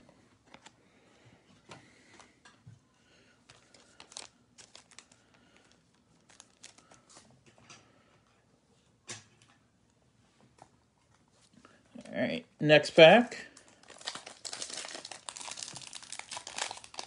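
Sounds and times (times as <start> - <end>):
cards and foil wrapping crinkling: 3.4 - 7.6, 13.4 - 17.0.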